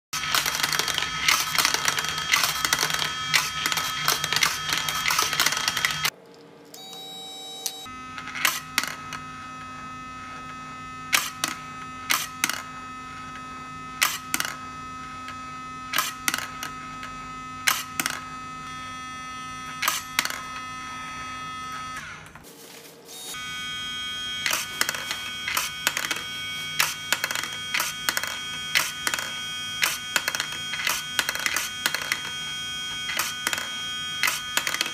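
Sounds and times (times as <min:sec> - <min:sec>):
electric motor whine and hum: 0:00.2 - 0:06.2, 0:06.8 - 0:34.9.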